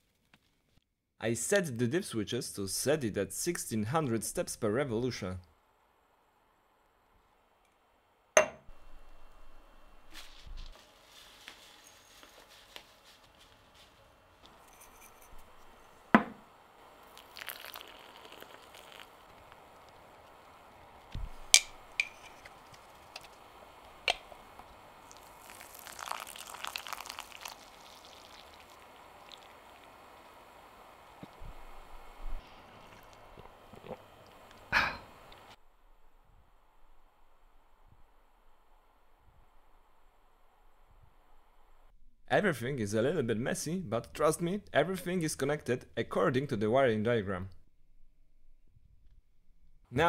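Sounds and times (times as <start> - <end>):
dry leaves rustling: 10.1 - 14.1.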